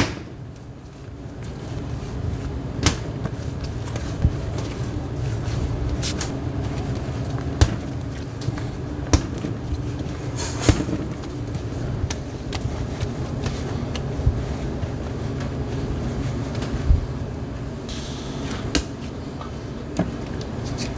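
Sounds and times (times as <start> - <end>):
low kitchen hum: 0.0 - 20.9.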